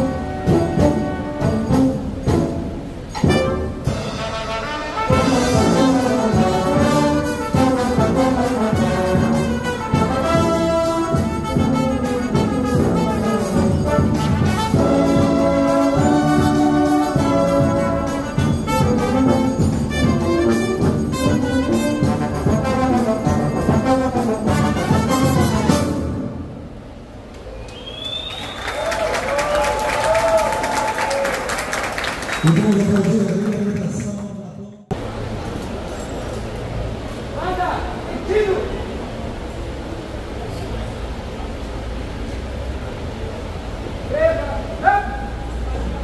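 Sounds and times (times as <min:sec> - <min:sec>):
percussion hits: 0:00.0 - 0:26.5
brass marching band playing: 0:00.0 - 0:27.1.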